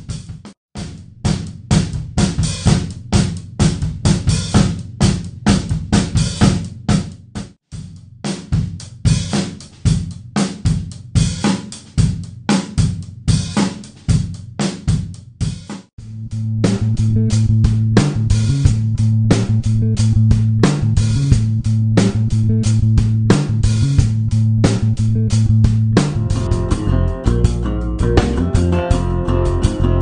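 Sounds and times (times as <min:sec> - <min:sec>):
drum kit groove: 0:00.0 - 0:30.0.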